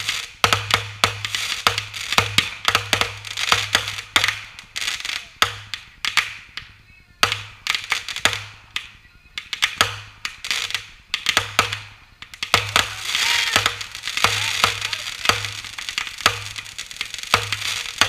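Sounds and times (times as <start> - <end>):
fireworks crackling hiss: 0.0 - 18.0
fireworks launching and bursting: 0.0 - 18.0.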